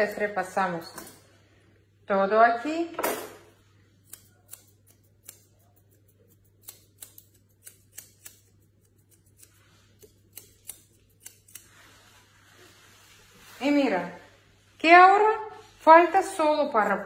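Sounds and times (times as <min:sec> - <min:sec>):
scissors snipping hair: 0:04.0 - 0:11.8.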